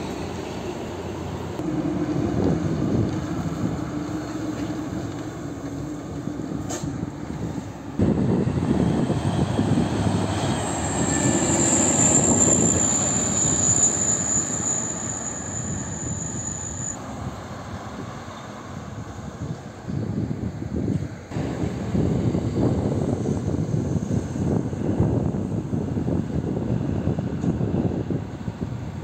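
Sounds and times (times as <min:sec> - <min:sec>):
heavy trucks driving past: 0:00.0 - 0:19.8
thin high whine: 0:09.5 - 0:17.0.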